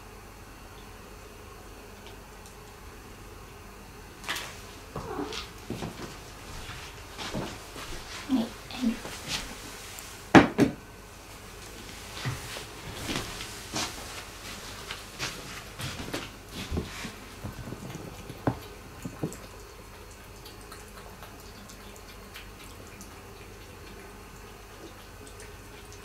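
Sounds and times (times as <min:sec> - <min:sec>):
cats eating wet clicks: 0:00.7 - 0:03.4, 0:14.3 - 0:26.0.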